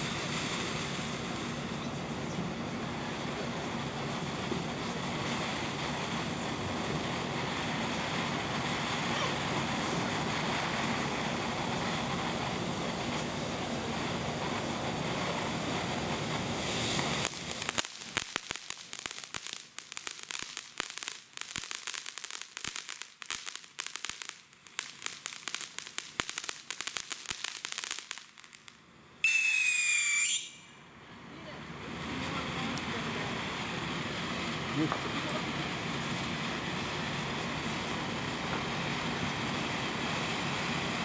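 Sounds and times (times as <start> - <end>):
fountain firework hissing and crackling: 0.0 - 41.0
loud shrill whistle: 29.2 - 30.8.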